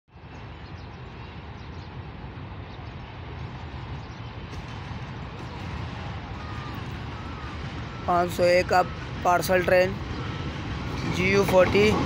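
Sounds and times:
distant locomotive rumbling: 0.1s - 12.0s.

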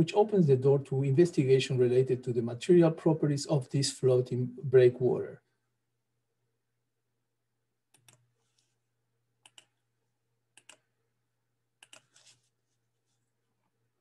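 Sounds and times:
computer mouse double-clicks: 10.6s - 10.8s, 11.8s - 12.3s.

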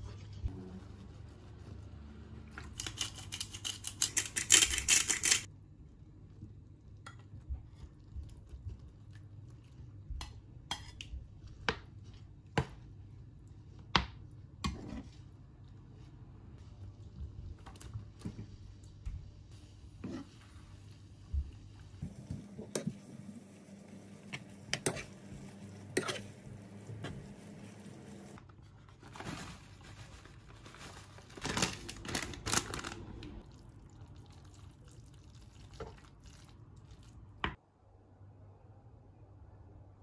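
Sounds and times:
wet squelching of sauce: 33.4s - 37.4s.

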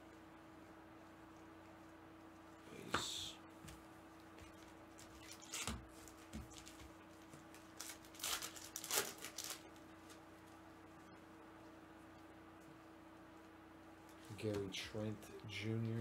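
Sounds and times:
faint steady hum: 0.0s - 16.0s
foil wrappers crinkling: 5.0s - 10.2s.

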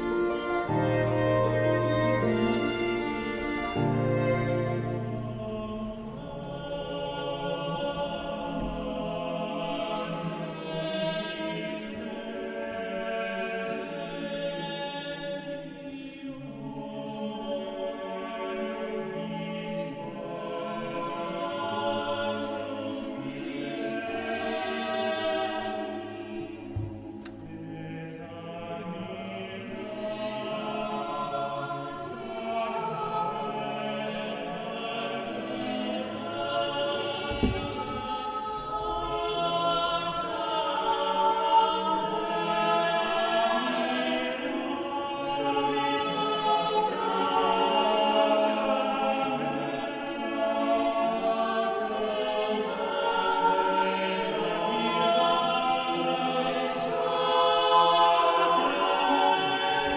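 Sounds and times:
choir singing sustained chords: 0.0s - 59.9s.

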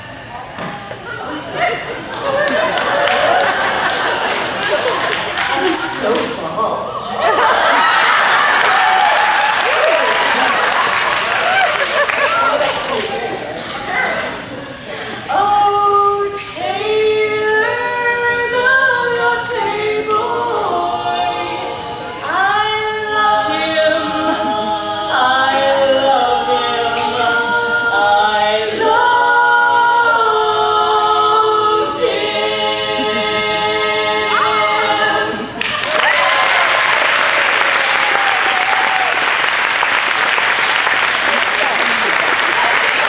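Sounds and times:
audience applause: 2.0s - 5.9s, 7.4s - 13.6s, 35.6s - 43.0s
women singing a cappella harmony: 14.8s - 35.6s.

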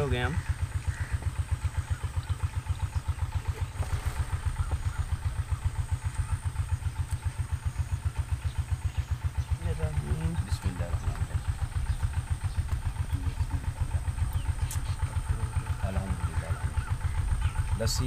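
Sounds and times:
engine chugging at low speed: 0.0s - 18.0s
faint clicks: 7.0s - 7.3s.

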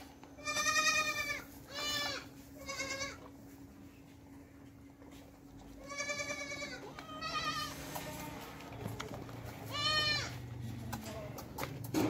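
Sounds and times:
goats bleating: 0.4s - 3.3s, 5.7s - 8.6s, 9.6s - 10.5s.

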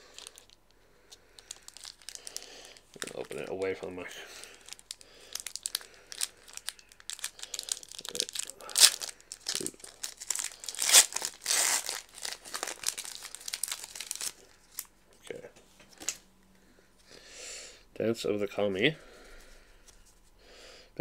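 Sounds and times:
foil wrapper tearing and crinkling: 1.4s - 3.7s, 4.4s - 14.9s.

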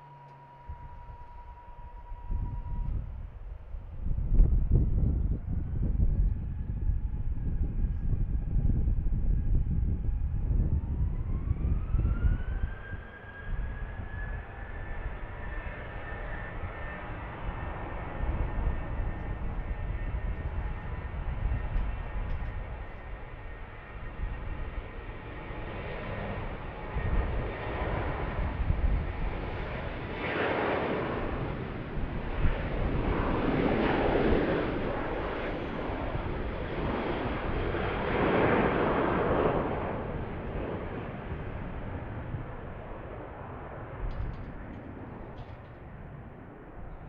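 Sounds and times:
jet engines spooling up: 0.0s - 4.8s
low rumbling: 0.0s - 12.7s
jet engines at takeoff thrust: 0.0s - 47.0s.

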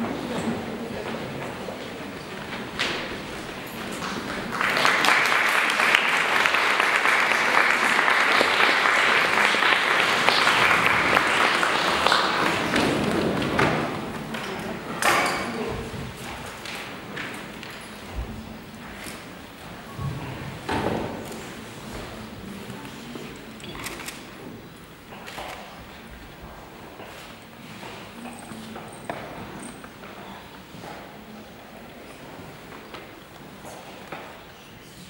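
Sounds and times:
audience applauding: 3.6s - 14.8s.

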